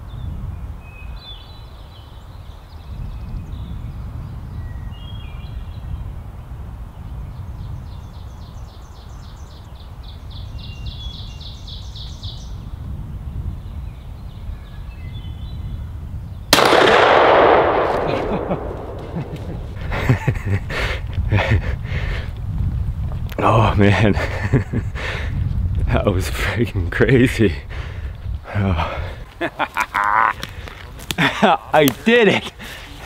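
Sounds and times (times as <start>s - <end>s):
small birds chirping: 0.0s - 16.5s, 18.3s - 22.5s, 23.3s - 33.0s
low wind rumble: 0.0s - 33.0s
loud gunshot: 16.6s - 20.0s.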